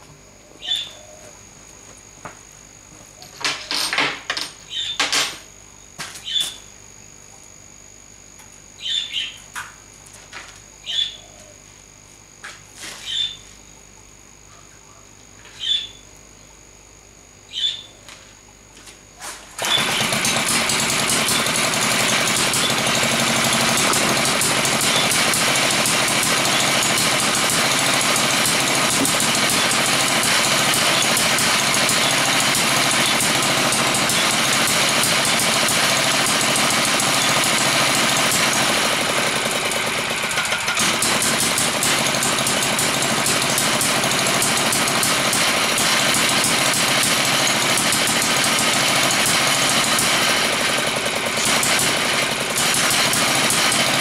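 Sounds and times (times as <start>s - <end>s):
two-stroke engine starting and running: 18.8s - 54.0s.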